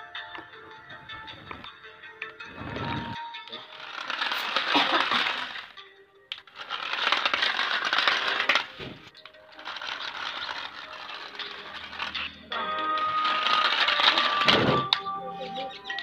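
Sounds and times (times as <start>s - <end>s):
music playing: 0.0s - 16.0s
toy jet rattling over paving: 3.5s - 15.0s.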